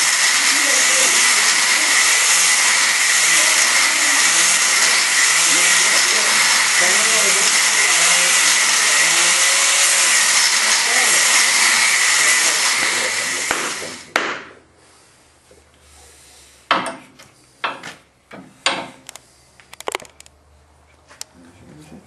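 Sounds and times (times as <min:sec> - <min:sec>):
power grinder grinding steel: 0:00.0 - 0:14.2.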